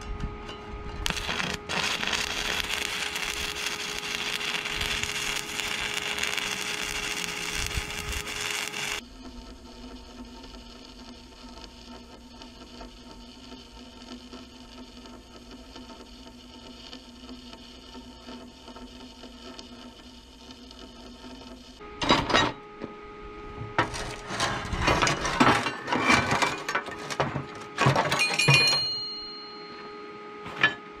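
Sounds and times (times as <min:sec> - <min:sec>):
steel plate ringing: 0:01.0 - 0:09.0
welding arc crackling: 0:01.0 - 0:21.8, 0:23.8 - 0:24.9.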